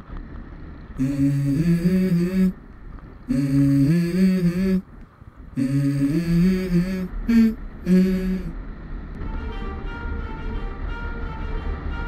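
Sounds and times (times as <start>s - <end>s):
man humming a tune: 1.0s - 2.6s, 3.3s - 4.9s, 5.6s - 8.6s.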